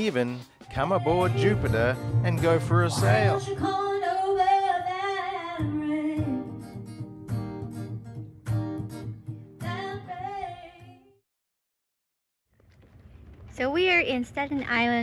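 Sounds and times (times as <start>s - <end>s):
acoustic guitar: 0.0s - 11.0s
woman singing: 0.8s - 1.9s, 3.2s - 6.5s, 9.6s - 11.2s.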